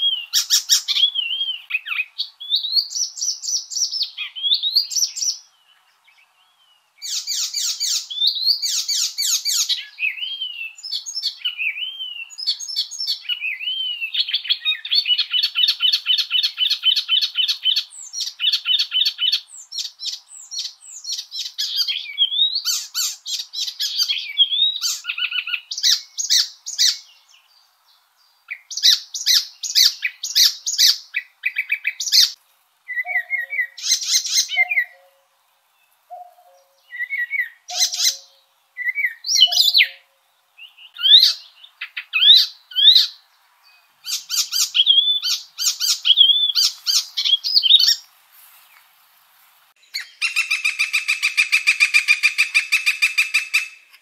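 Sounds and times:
songbird singing: 0.0s - 54.0s
fast bird trill: 36.1s - 40.0s, 49.9s - 53.9s.

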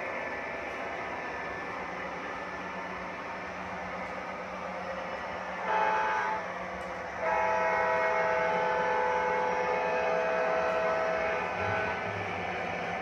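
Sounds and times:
locomotive horn blasts: 5.6s - 12.3s.

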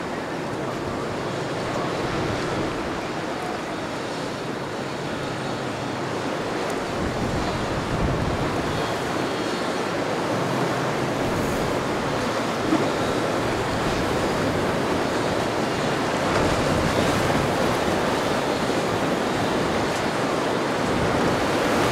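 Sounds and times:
wind buffeting microphone: 0.0s - 21.9s
rough sea water breaking: 6.1s - 21.9s.

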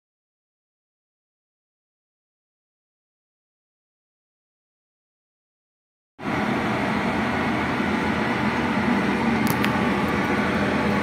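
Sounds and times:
whirring rush with low hum: 6.2s - 11.0s.

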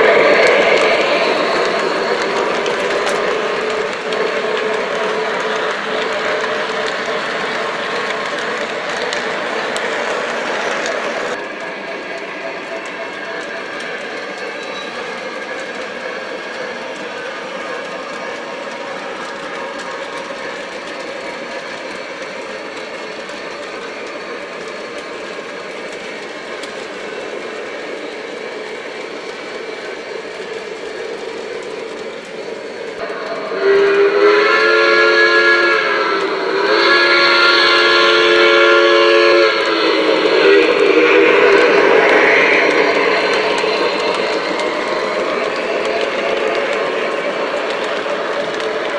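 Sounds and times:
model steam locomotive running: 0.0s - 48.9s
steam whistle chord blasts: 33.2s - 42.0s.

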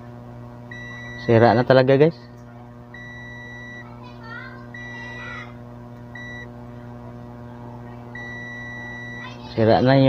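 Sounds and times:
low mains hum: 0.0s - 10.0s
multimeter continuity beeps: 0.7s - 1.6s, 2.9s - 3.9s, 4.7s - 5.3s, 6.1s - 6.5s, 8.1s - 9.4s.

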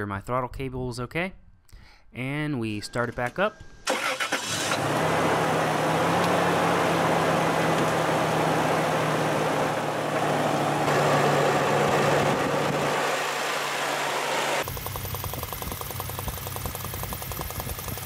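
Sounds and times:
car engine starting and idling: 3.8s - 18.0s.

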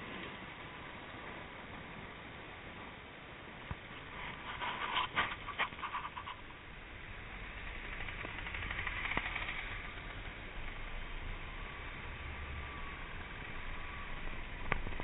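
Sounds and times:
wind and road noise: 0.0s - 15.0s
camera handling scratching: 4.2s - 6.4s.

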